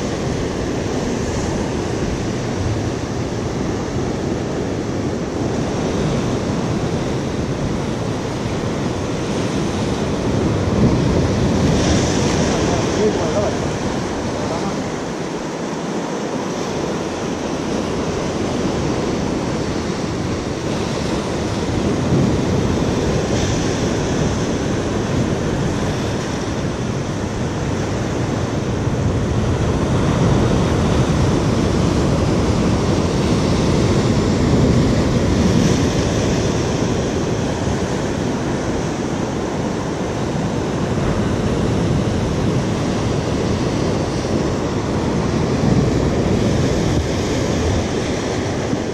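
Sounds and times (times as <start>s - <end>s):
sea surf breaking over rocks: 0.0s - 48.9s.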